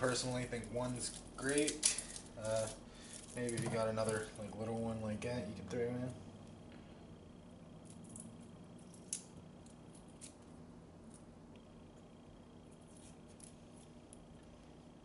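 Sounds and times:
low steady hum: 0.0 - 15.0
garlic skin peeling crackles: 0.2 - 4.4, 7.9 - 11.7.

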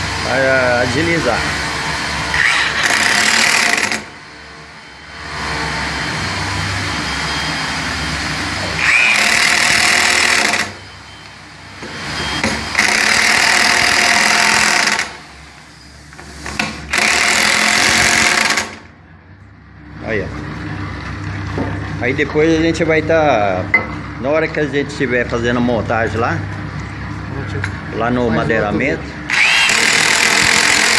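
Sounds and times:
impact wrench hammering: 2.3 - 4.1, 12.4 - 15.2, 16.4 - 18.9, 29.3 - 30.9.

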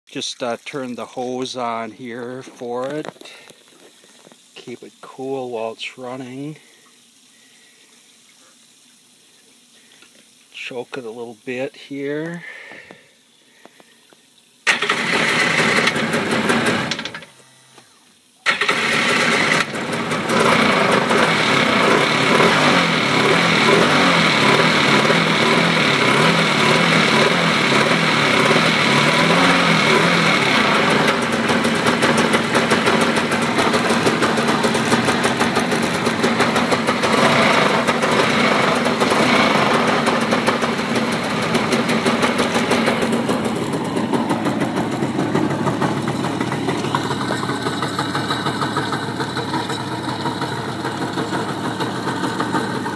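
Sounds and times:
two-stroke engine starting and running: 14.6 - 52.9.

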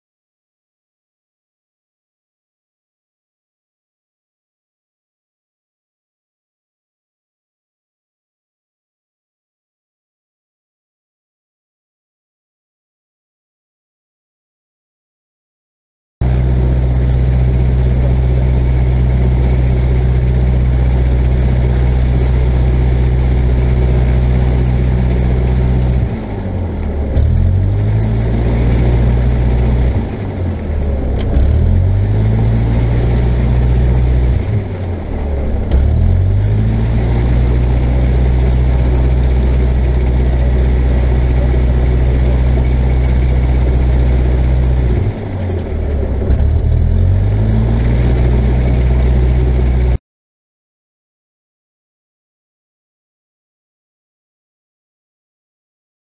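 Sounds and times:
aircraft engine and propeller: 16.2 - 50.0.

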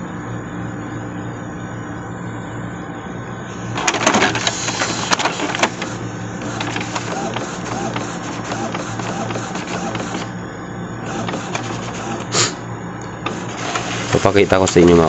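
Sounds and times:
printer low hum: 0.0 - 15.0
printer carriage clattering clicks: 3.7 - 10.3, 11.0 - 12.3, 13.2 - 15.0.

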